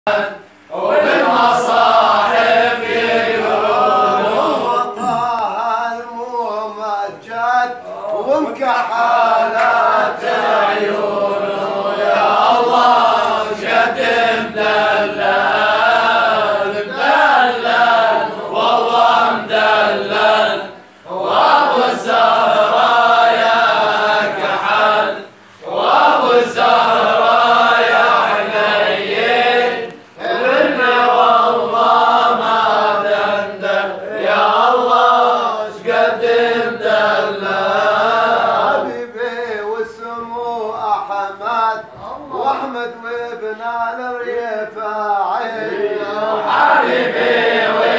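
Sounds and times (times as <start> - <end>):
man chanting praise song: 0.9 - 25.3.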